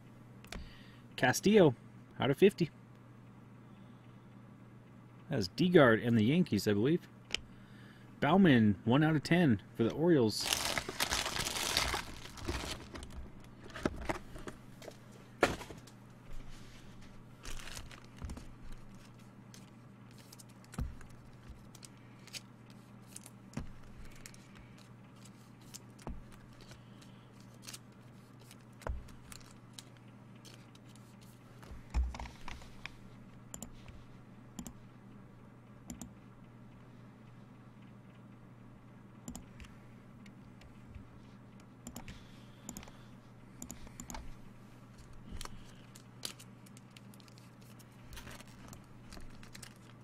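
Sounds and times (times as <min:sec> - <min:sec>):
steady low hum: 0:00.0 - 0:50.0
foil wrapper crinkling: 0:10.3 - 0:14.2, 0:17.4 - 0:26.8, 0:27.4 - 0:30.0, 0:45.3 - 0:50.0.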